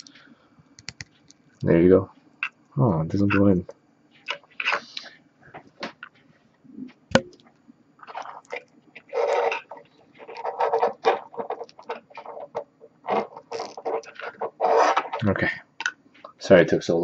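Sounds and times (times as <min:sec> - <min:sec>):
plastic parts clicking and scraping: 0:08.0 - 0:15.3.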